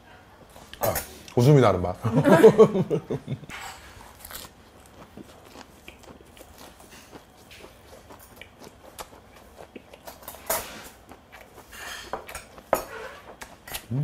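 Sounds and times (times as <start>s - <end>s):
man chewing food: 3.5s - 14.0s.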